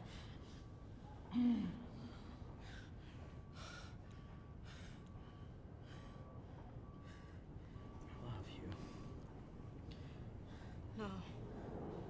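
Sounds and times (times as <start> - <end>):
man breathing: 1.9 - 8.0, 9.8 - 12.0.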